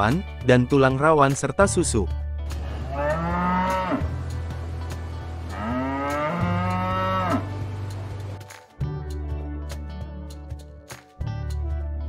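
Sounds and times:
cow mooing: 2.7 - 4.2, 5.5 - 7.6.

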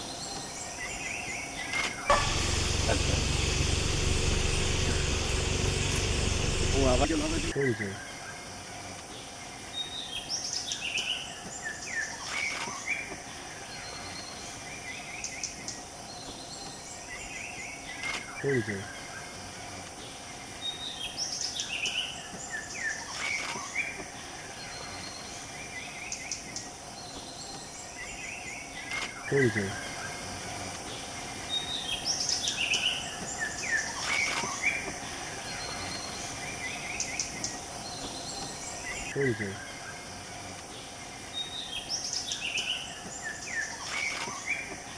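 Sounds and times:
high hum of insects: 0.0 - 44.9
insects hissing: 2.2 - 7.6
birds chirping and whistling: 9.5 - 19.2, 20.1 - 40.1, 40.8 - 44.9.

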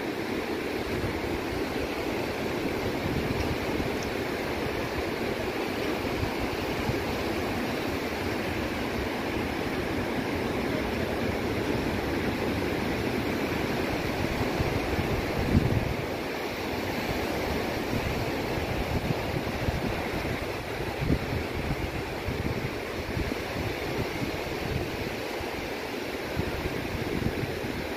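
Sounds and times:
waves breaking on beach: 0.0 - 27.9
wind on microphone: 0.0 - 27.9.

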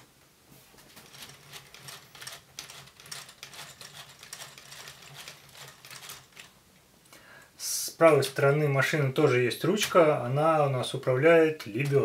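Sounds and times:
plastic parts clicking: 1.0 - 6.5.

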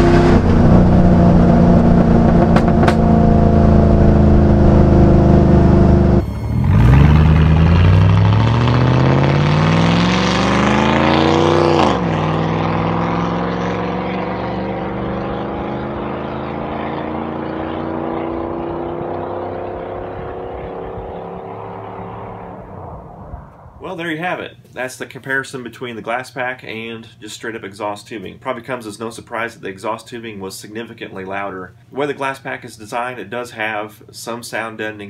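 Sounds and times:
truck engine accelerating: 0.0 - 23.8.

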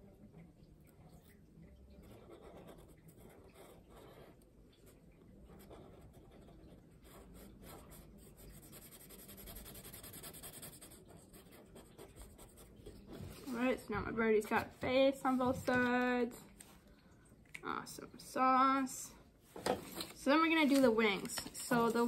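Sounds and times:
marker scratching on paper: 2.1 - 4.4, 5.5 - 13.8.

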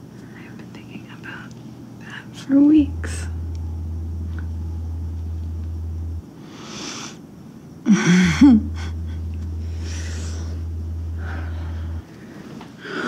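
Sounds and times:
low hum: 0.0 - 13.0
woman moaning: 7.8 - 12.0
breathy exhale: 11.2 - 13.0.

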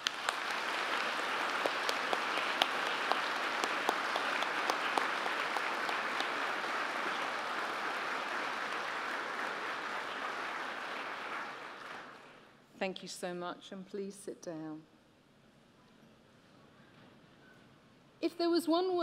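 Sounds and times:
large crowd applauding: 0.0 - 12.5.

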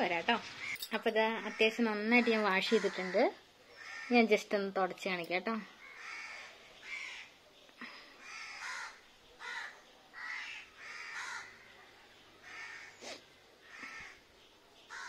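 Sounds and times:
crows cawing: 0.6 - 4.3, 5.8 - 7.3, 8.2 - 11.7, 12.4 - 13.0, 13.6 - 14.2.

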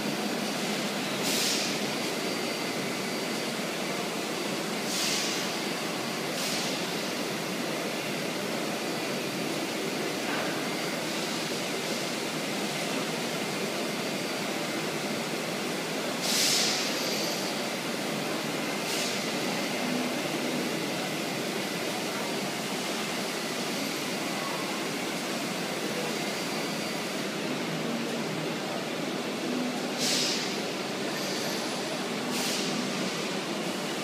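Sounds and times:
short sharp hiss: 1.2 - 1.7, 4.9 - 5.4, 16.2 - 16.9, 30.0 - 30.5, 32.3 - 32.8
cnc router milling wood: 22.6 - 27.6.

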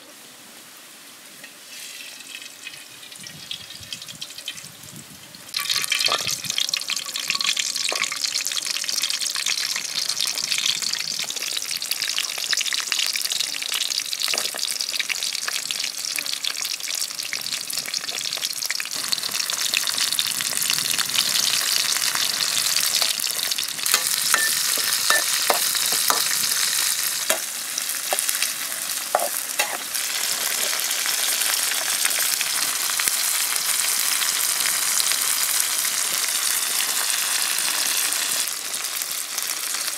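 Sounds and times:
food sizzling in hot oil: 1.4 - 39.9
oil popping: 5.5 - 8.2.

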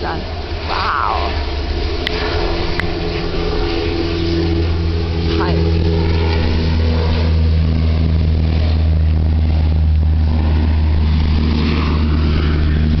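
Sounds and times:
propeller plane drone: 0.0 - 13.0.

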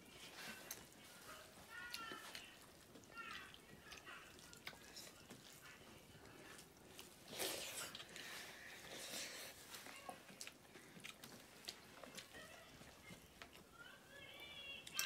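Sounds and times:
chewing and lip smacks: 1.8 - 9.2, 10.1 - 13.7.

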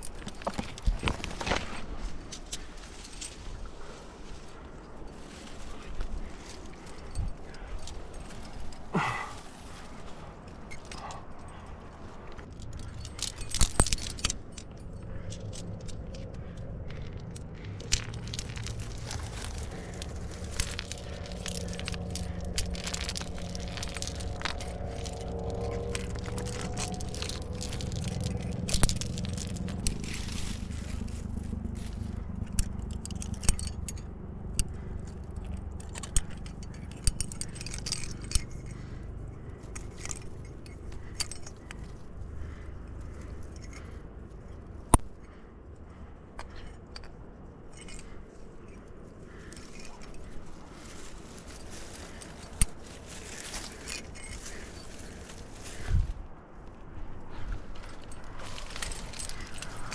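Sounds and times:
metal carabiners clinking: 0.0 - 59.9
sharp metal clicks: 32.4 - 42.0.

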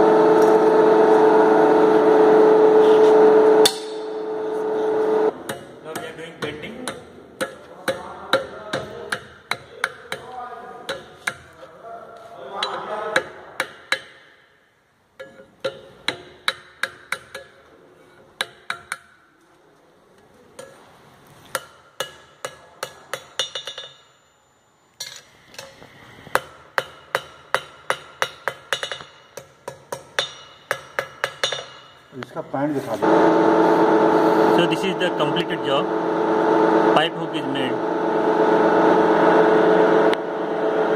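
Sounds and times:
hammer striking metal: 3.6 - 4.3, 5.3 - 11.5, 12.6 - 14.5, 15.2 - 17.6, 21.5 - 24.3, 26.3 - 32.1.

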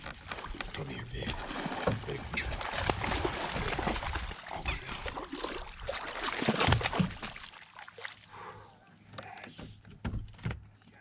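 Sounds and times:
fish splashing in water: 0.0 - 8.3.

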